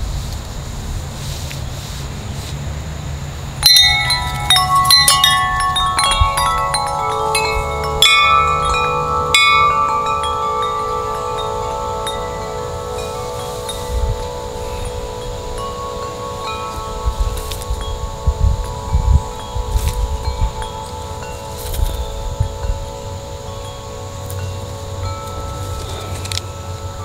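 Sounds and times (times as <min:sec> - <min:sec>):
metal wind chime ringing: 0:03.6 - 0:27.0.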